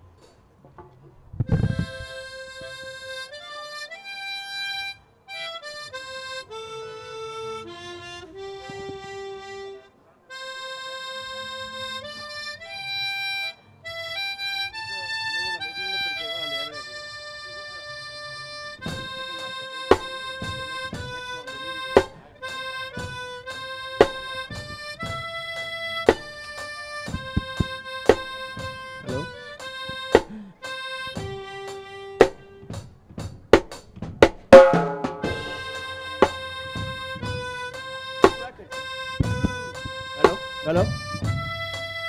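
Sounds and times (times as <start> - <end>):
harmonica melody: 1.4 - 42.0
drum kit beat: 18.8 - 42.0
cymbal crash: 34.6 - 36.4.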